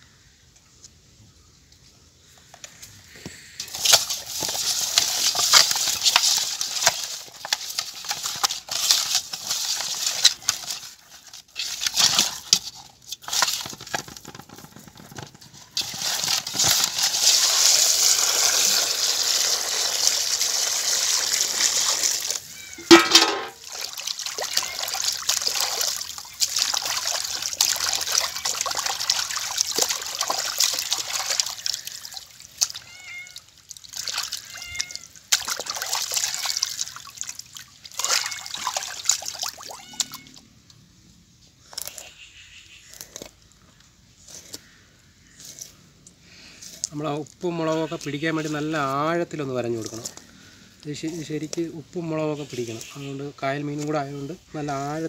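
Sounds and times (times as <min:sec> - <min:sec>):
fish sloshed in water: 0:03.0 - 0:40.5
hands rubbing fish: 0:03.3 - 0:18.9, 0:21.5 - 0:39.4
water pouring into basin: 0:15.8 - 0:39.8.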